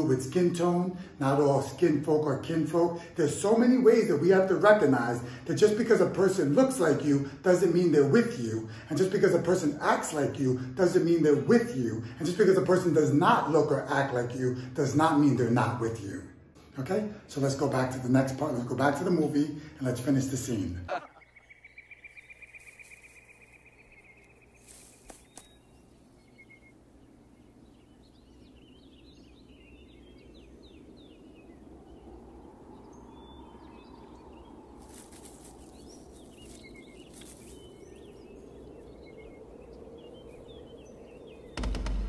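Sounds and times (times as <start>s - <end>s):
birds chirping and calling: 18.1s - 42.0s
bird trill: 20.9s - 42.0s
brief rustles: 24.2s - 25.6s, 34.8s - 37.6s
faint low drone: 25.8s - 42.0s.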